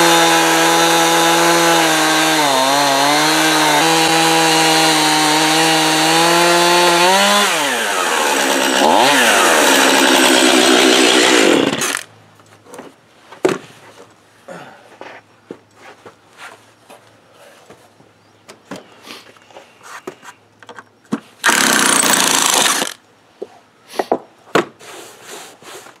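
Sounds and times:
chainsaw cutting wood: 0.0s - 12.1s, 21.4s - 23.0s
wooden knocks and clunks: 12.7s - 14.1s.

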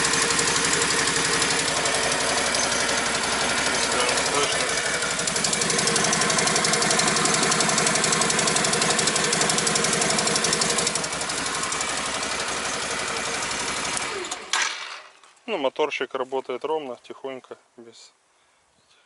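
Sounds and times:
atv engine idling: 0.0s - 14.5s.

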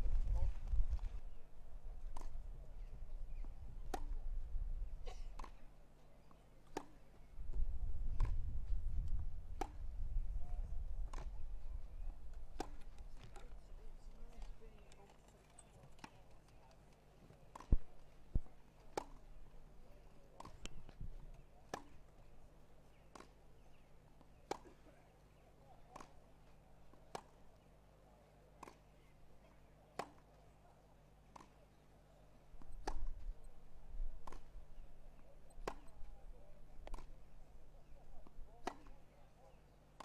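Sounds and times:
tennis ball struck by rackets: 2.1s - 2.4s, 3.8s - 4.2s, 6.7s - 7.0s, 8.2s - 8.4s, 9.5s - 9.9s, 11.1s - 11.4s, 12.5s - 13.5s, 17.5s - 19.3s, 20.4s - 21.0s, 21.7s - 22.0s, 23.1s - 23.4s, 28.6s - 28.8s, 30.0s - 30.3s, 32.6s - 33.3s, 34.2s - 34.6s, 35.5s - 36.0s, 36.8s - 37.3s, 38.2s - 39.0s.

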